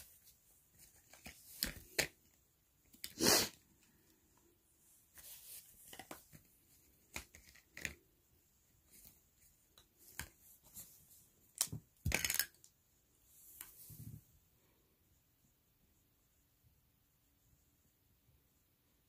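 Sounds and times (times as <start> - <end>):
small clicks of items handled: 11.5 - 12.8.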